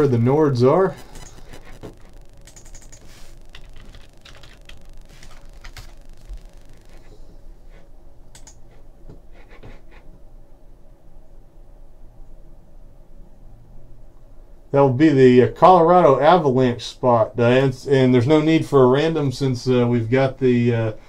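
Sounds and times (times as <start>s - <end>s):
computer keyboard typing: 1.0s - 7.1s, 8.4s - 8.6s.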